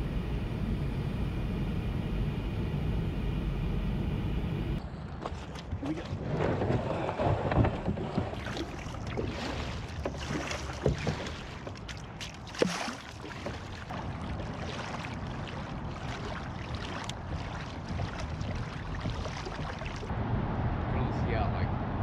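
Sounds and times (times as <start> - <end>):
paddle strokes splashing: 5.2 - 20.1
water washing: 5.2 - 20.1.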